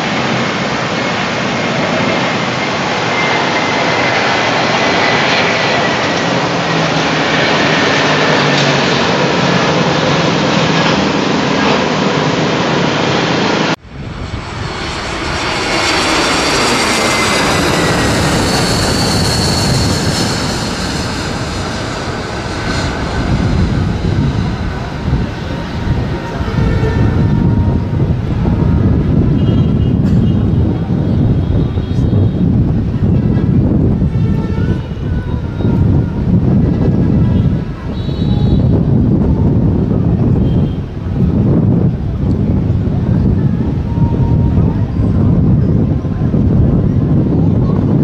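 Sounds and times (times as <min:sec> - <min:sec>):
jet airliner passing low: 0:00.0 - 0:48.0.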